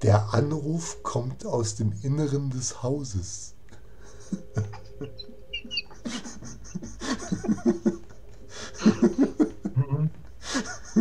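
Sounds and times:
rhythmic bursts of laughing: 0:03.7 - 0:11.0.

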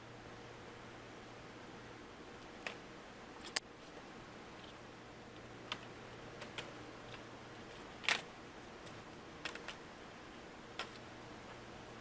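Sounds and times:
plastic laptop parts clicking: 0:05.7 - 0:09.8, 0:10.8 - 0:11.0.

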